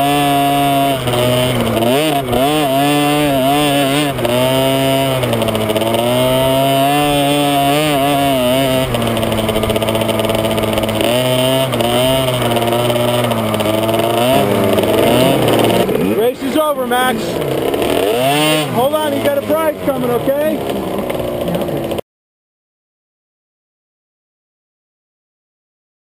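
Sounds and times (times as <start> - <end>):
motocross bike engine revving: 0.0 - 22.0.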